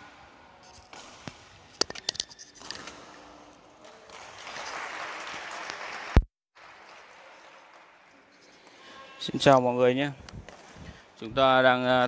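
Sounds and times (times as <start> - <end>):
spectators clapping: 3.8 - 8.2.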